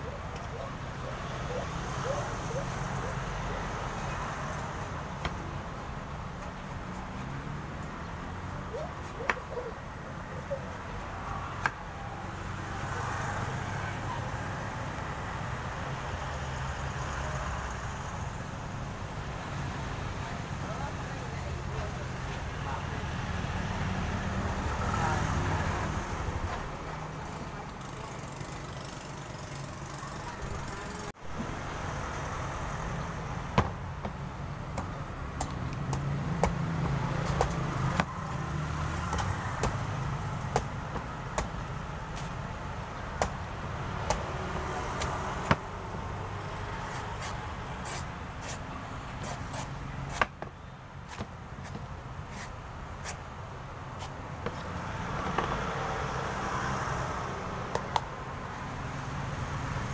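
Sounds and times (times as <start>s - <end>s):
cleaver chopping coconut husk: 33.6s - 38.1s, 38.9s - 41.6s, 43.1s - 45.7s, 49.2s - 50.5s.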